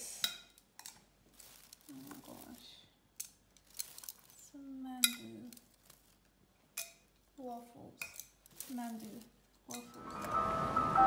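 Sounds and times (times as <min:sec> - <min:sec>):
food handling clicks and rustling: 0:00.6 - 0:07.2, 0:08.0 - 0:10.0.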